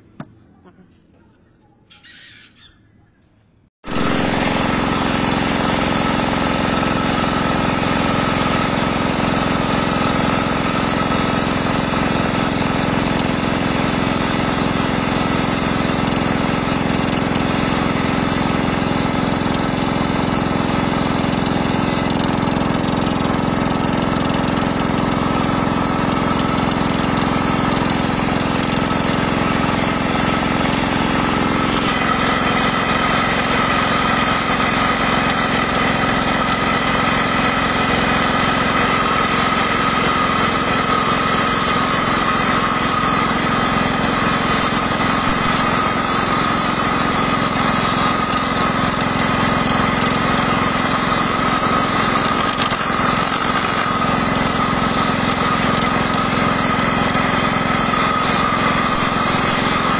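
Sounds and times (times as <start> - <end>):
diesel engine running: 3.8 - 59.9
circular saw: 3.9 - 23.2, 24.4 - 59.9.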